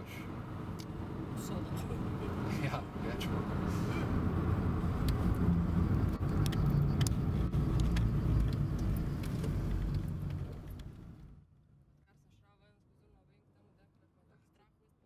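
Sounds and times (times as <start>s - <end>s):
car engine and road rumble: 0.0s - 14.3s.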